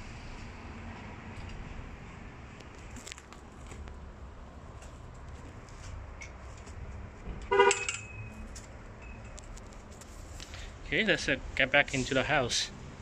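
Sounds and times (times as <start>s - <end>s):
car horn toot: 7.5s - 8.3s.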